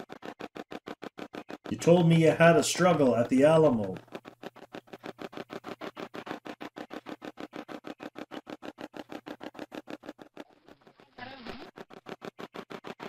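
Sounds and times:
radio sweep choppy bursts: 1.4 - 10.5.

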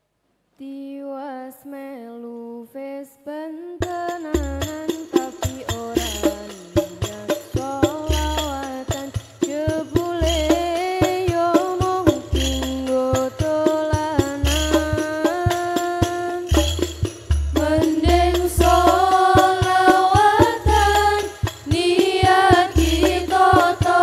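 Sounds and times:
deep bass drum booms: 16.5 - 24.0.

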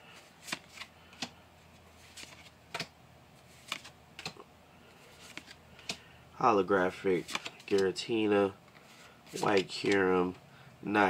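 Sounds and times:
trading cards flipped clicking: 2.1 - 2.9, 3.6 - 4.4, 5.2 - 6.0, 7.3 - 7.8.

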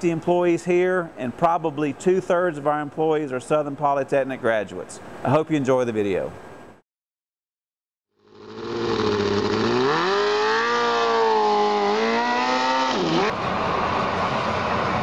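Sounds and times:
race car engine revving: 8.2 - 13.4.

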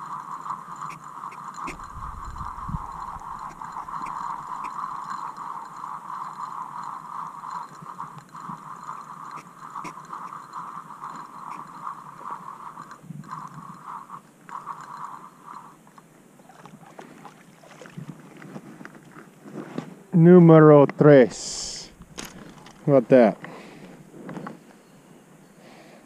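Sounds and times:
fishing reel gears whirring: 0.0 - 16.2, 21.4 - 24.2.

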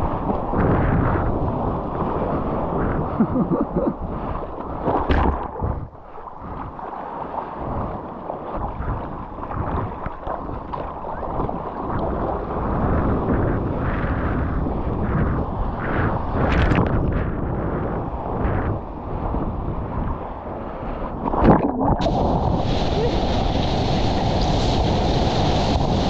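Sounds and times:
water rushing and splashing: 0.0 - 13.0, 21.1 - 26.0
wind buffeting microphone: 0.0 - 26.0.

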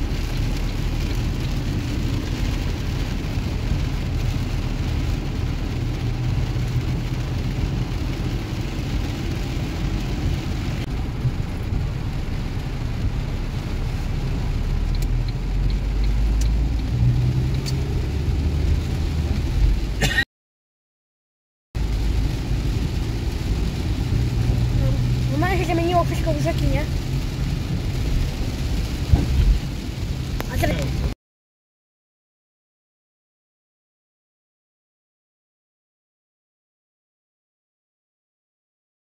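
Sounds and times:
car engine and road rumble: 0.0 - 20.2, 21.8 - 31.2
rain and wet tyres hiss: 0.0 - 20.2, 21.8 - 31.2.

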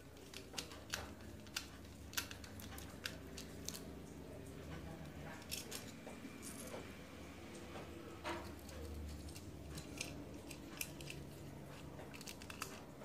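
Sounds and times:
screwdriver clicks and scrapes: 8.4 - 13.0.

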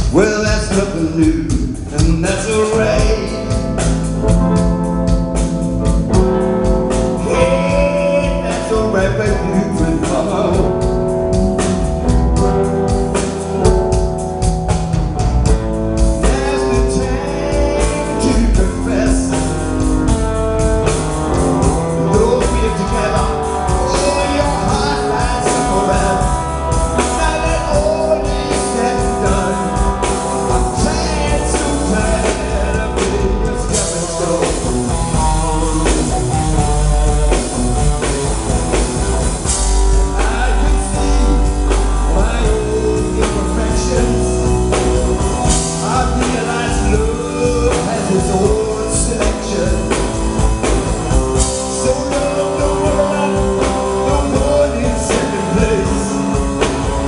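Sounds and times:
bass guitar: 0.0 - 57.0
drum kit: 0.0 - 57.0
electric guitar lead: 0.0 - 57.0.

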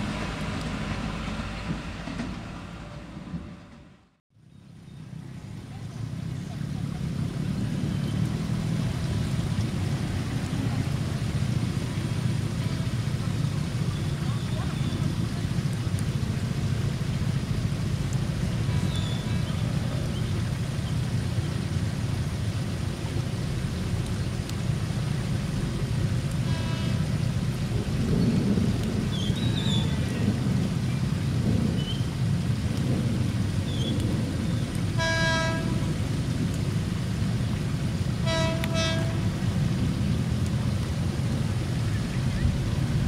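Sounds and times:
heavy rain: 0.0 - 3.2, 4.7 - 43.0
train horn toots: 26.4 - 27.2, 35.0 - 36.0, 38.2 - 39.5.

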